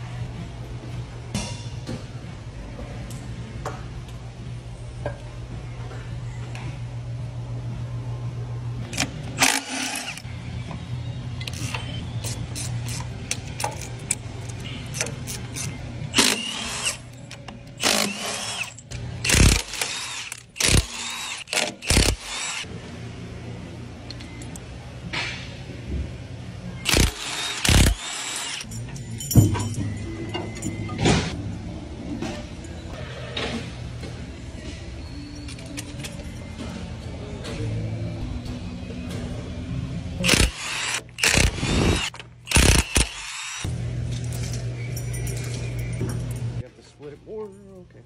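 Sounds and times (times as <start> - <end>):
steady low hum: 0.0 - 28.0
impact wrench running in bursts: 9.4 - 10.2, 14.9 - 17.0, 17.8 - 22.7, 26.9 - 28.7, 40.2 - 43.7
heavy metal parts clanking: 28.6 - 31.4.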